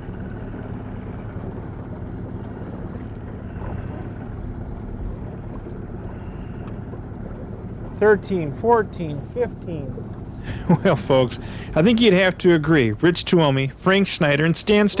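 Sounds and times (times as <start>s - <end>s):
boat motor humming: 0.0s - 15.0s.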